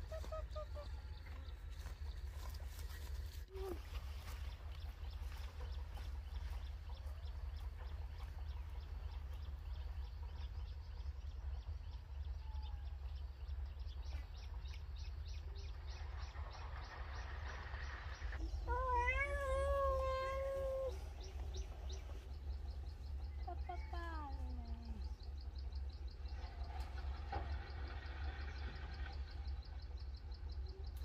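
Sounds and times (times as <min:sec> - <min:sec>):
animal calling: 0:00.0 - 0:01.2.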